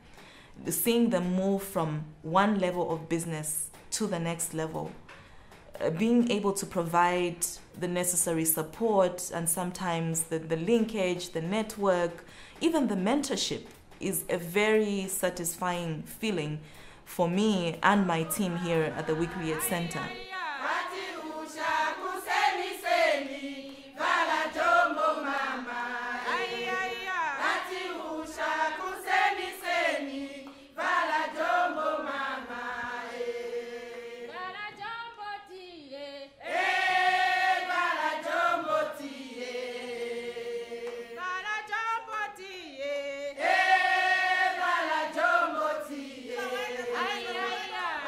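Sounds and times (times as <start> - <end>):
choir singing: 18.0 - 48.0.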